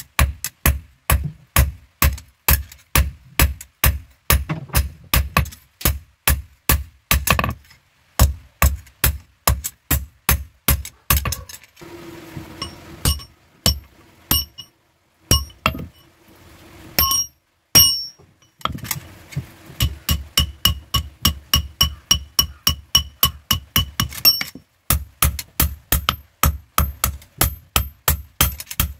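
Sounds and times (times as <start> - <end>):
hammer striking metal on anvil: 12.6 - 14.7, 15.3 - 16.0, 17.0 - 18.8, 19.8 - 28.9.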